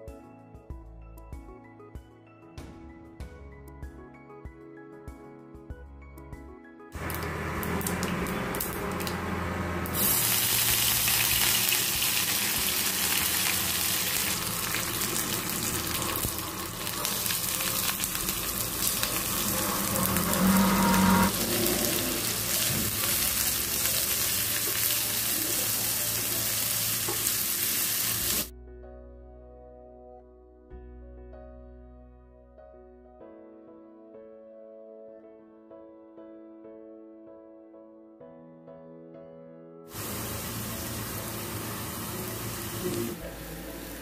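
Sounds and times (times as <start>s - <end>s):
soft background music: 0.0s - 9.7s, 28.5s - 44.0s
hot oil sizzling in a pan: 9.9s - 28.5s, 39.9s - 44.0s.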